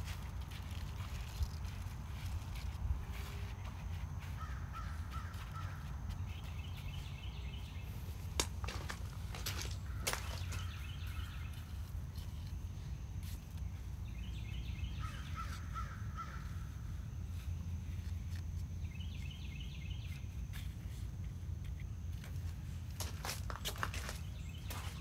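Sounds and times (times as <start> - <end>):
crow cawing: 15.1 - 16.6.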